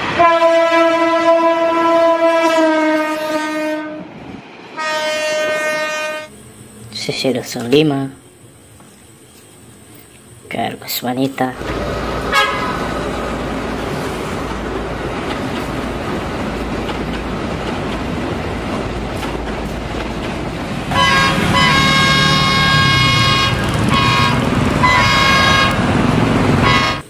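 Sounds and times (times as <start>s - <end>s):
train rumbling past: 0.0s - 27.0s
locomotive horn: 0.1s - 4.1s, 4.8s - 6.4s, 12.3s - 13.0s, 20.9s - 27.0s.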